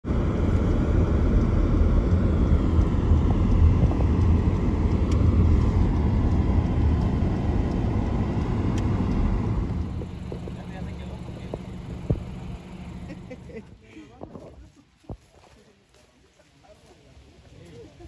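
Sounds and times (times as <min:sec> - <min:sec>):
road and wind noise in car: 0:00.0 - 0:15.8.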